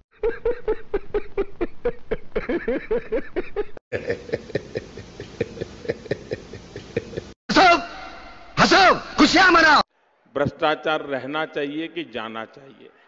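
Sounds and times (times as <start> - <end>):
man laughing hard: 0.1 - 7.4.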